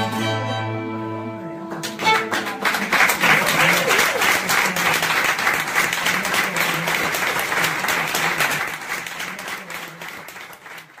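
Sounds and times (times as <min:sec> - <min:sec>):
audience applauding: 0:01.7 - 0:11.0.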